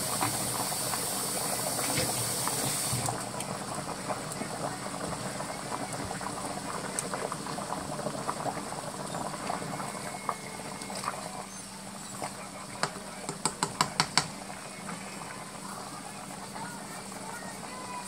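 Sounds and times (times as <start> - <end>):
meat and sauce sizzling in a pan: 0.0 - 4.0
water boiling in a pot: 0.0 - 18.0.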